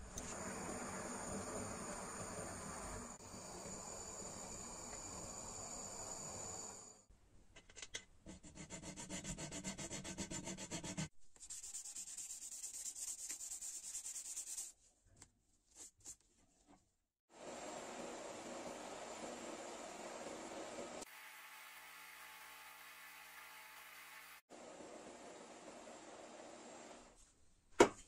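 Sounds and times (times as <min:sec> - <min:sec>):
gas torch flame hiss: 0:00.0 - 0:07.1
hand file rasping metal: 0:08.3 - 0:11.1.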